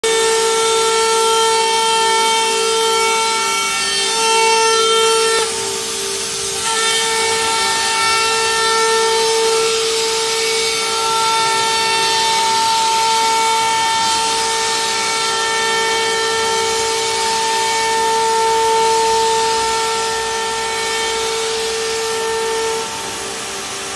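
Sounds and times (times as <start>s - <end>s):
router spindle high whine: 0.0s - 23.9s
hiss of cutting metal: 4.8s - 14.7s.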